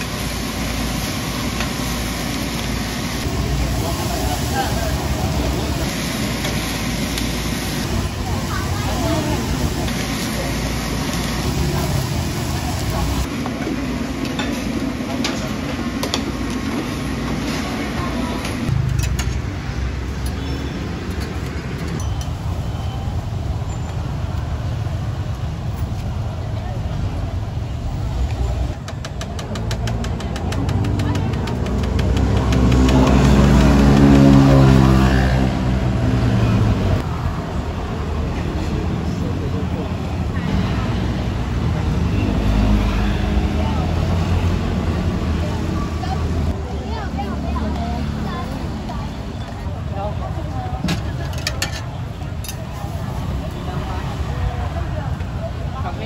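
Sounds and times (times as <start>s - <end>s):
food sizzling on griddle: 0.0s - 13.3s
vehicle engine running: 28.7s - 37.0s.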